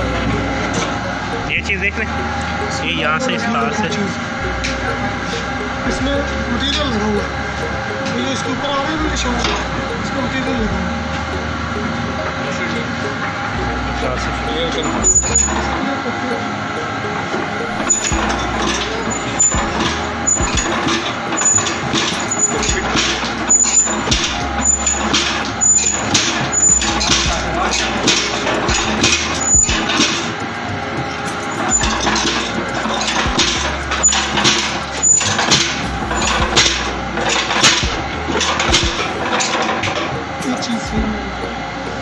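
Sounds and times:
machinery hum: 0.0s - 42.0s
stamping machine knocking: 17.4s - 41.4s.

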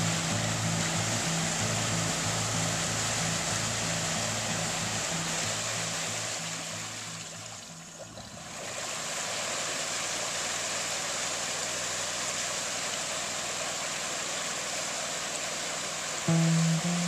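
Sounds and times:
atv engine running: 0.0s - 5.4s
water and mud rushing: 0.0s - 17.0s.

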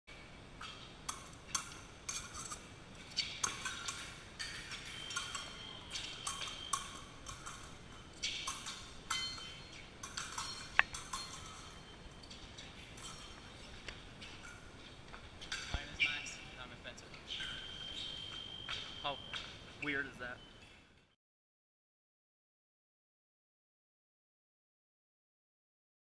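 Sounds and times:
fencing blades clinking: 0.6s - 16.1s
metallic ring: 3.5s - 12.0s.

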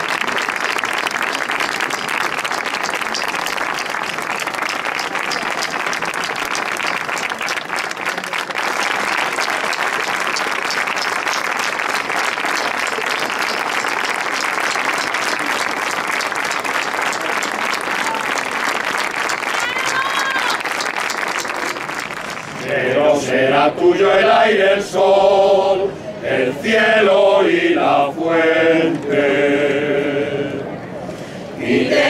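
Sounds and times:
crowd applauding: 0.0s - 22.9s.

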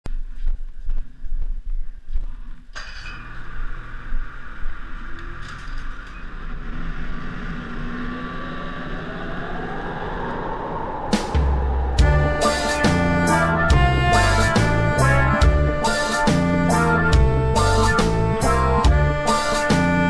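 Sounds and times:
snowmobile engine running: 11.8s - 20.0s.

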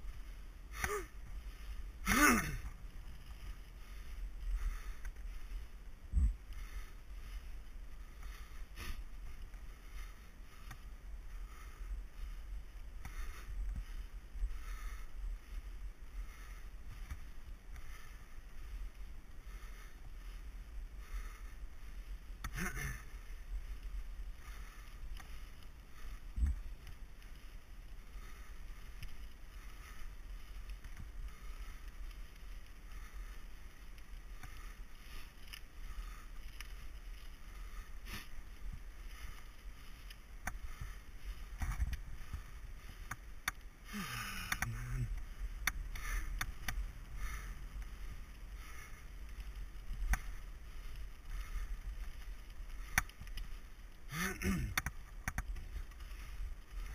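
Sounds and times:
bike clicks and rattles: 24.4s - 56.9s.

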